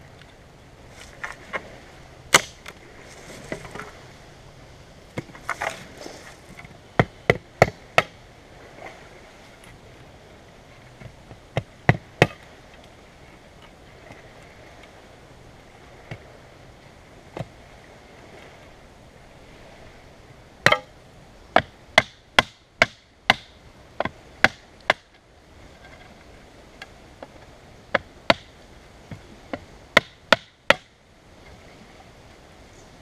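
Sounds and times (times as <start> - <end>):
knife chopping into wood: 2.3 - 2.7.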